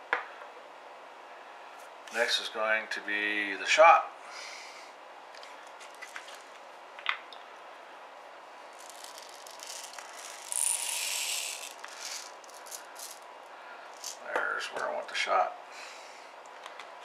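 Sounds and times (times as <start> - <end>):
soft breath: 4.2 - 5.0, 15.7 - 16.4.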